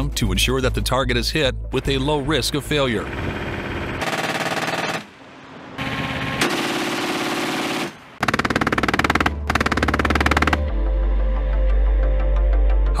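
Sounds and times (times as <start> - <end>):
machine-gun fire bursts: 3.6 - 5.1, 5.8 - 10.7.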